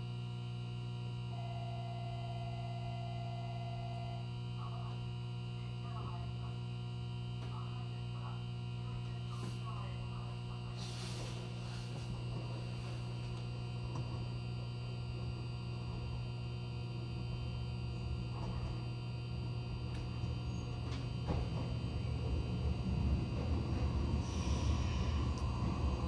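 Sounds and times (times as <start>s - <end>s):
low electrical hum: 0.0s - 26.0s
approaching train rumble: 20.8s - 26.0s.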